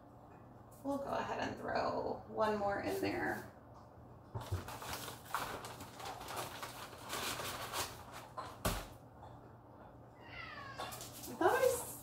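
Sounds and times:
paper snack bag crinkling: 4.4s - 8.4s
dry crisps crackling: 4.6s - 8.3s.

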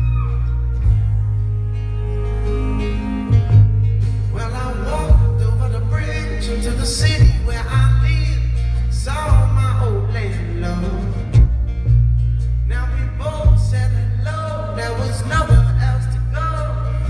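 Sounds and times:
acoustic guitar: 0.0s - 17.0s
heavy bass: 0.0s - 17.0s
man singing: 4.2s - 11.6s, 12.7s - 17.0s.

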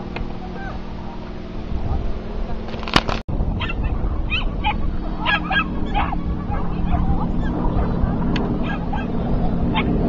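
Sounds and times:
dog barking and yipping: 3.6s - 9.9s.

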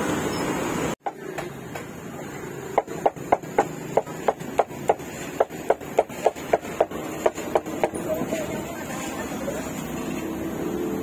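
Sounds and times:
busy street noise: 0.0s - 11.0s
cleaver chopping meat on wood: 1.1s - 1.9s, 2.7s - 8.0s.

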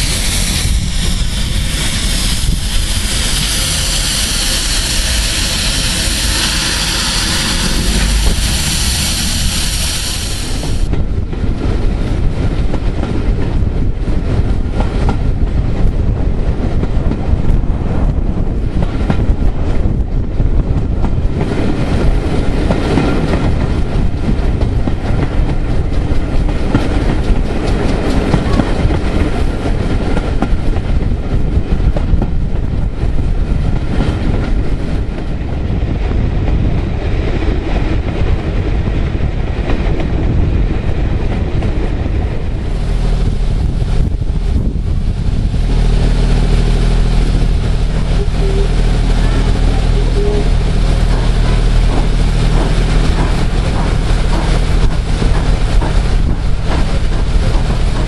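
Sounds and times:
train wheels clattering over rail joints: 20.6s - 58.0s.

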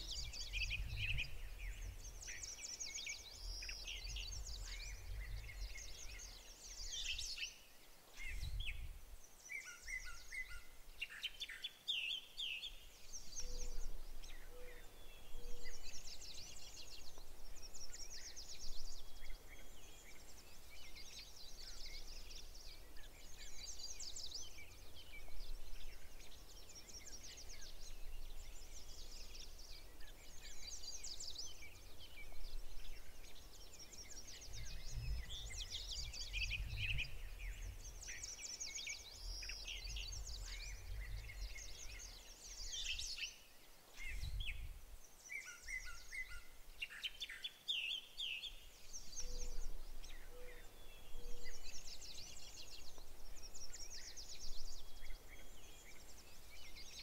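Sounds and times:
songbirds singing: 0.0s - 57.0s
low rumble: 0.2s - 2.2s, 34.6s - 38.1s.

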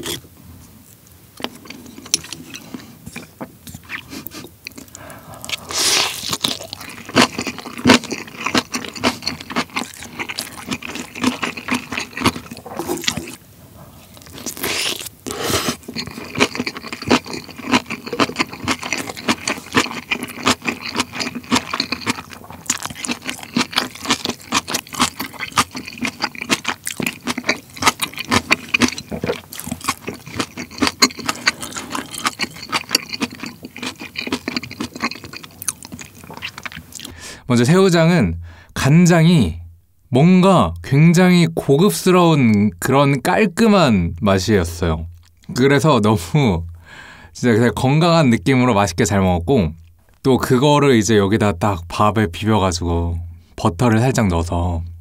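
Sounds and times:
wet chewing: 1.4s - 37.2s.

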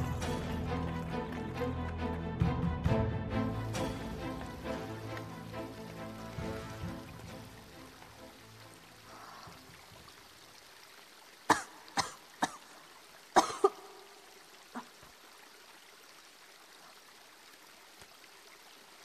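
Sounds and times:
woman coughing: 11.5s - 12.6s, 13.4s - 13.9s.

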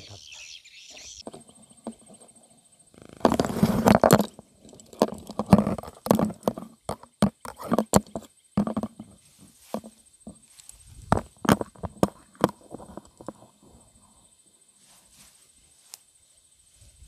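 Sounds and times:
grass rustling: 8.6s - 13.9s, 14.7s - 17.0s.

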